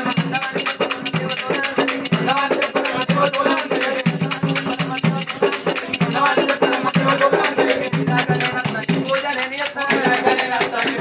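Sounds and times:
folk music with percussion: 0.0s - 11.0s
high shimmer of jingles: 0.0s - 11.0s.

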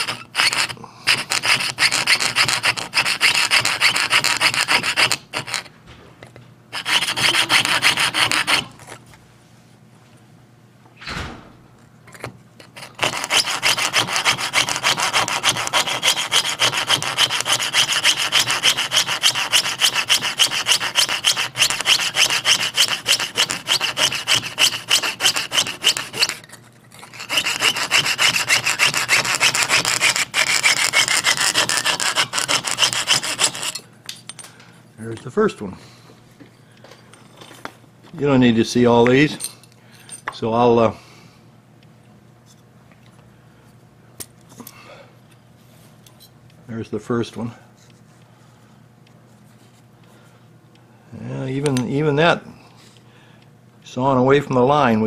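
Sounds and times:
fine saw cutting metal: 0.0s - 5.6s, 6.8s - 8.7s, 12.8s - 26.4s, 27.0s - 33.8s.

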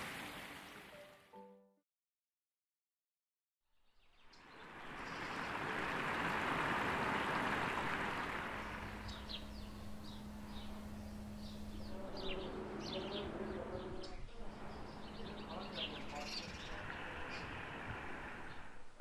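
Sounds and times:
broad rushing noise: 4.6s - 19.0s
small birds chirping: 7.4s - 18.7s
steady low hum: 7.4s - 18.9s.

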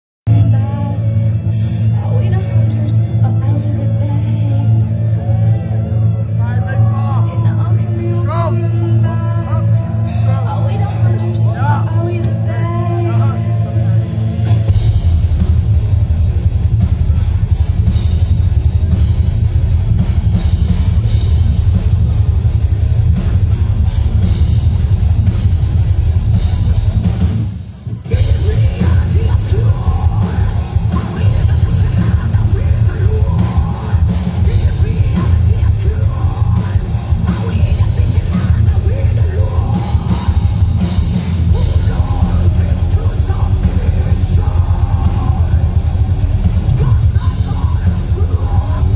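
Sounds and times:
person singing: 0.3s - 14.8s, 28.0s - 48.9s
heavy guitars: 0.3s - 48.9s
live heavy metal band playing: 0.3s - 48.9s
pounding bass drum: 10.5s - 48.9s.

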